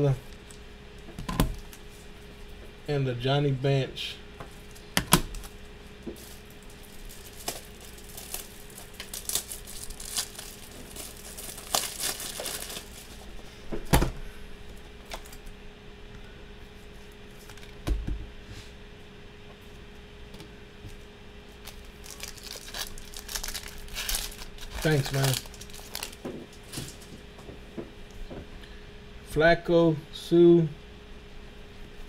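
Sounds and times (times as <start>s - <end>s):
foil wrappers crinkling: 4.5s - 13.3s, 15.0s - 15.5s, 21.6s - 27.2s.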